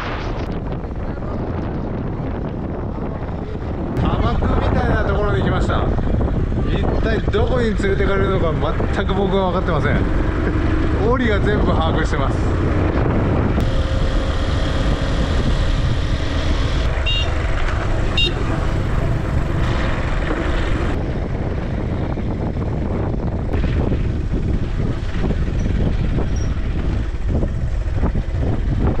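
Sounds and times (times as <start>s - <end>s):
wind rumble on microphone: 0.0s - 29.0s
motorbike engine running: 8.9s - 29.0s.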